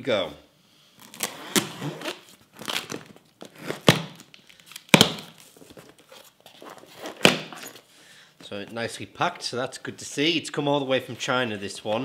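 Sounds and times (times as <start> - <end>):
knife slitting packing tape: 1.0 - 4.2
tape and cardboard ripping: 1.0 - 7.7.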